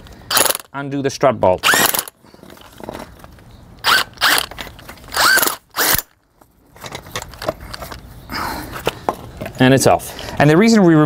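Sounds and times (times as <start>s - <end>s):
impact wrench whining: 0.3s - 0.7s, 1.6s - 3.0s, 3.8s - 6.2s.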